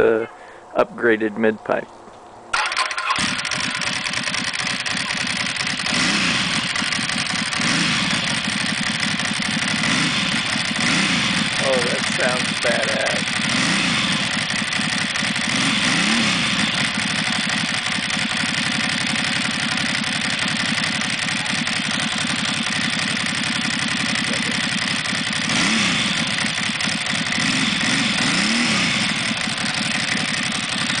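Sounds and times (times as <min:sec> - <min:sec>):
motorcycle engine idling: 0:02.5 - 0:31.0
motorcycle throttle blips: 0:02.5 - 0:31.0.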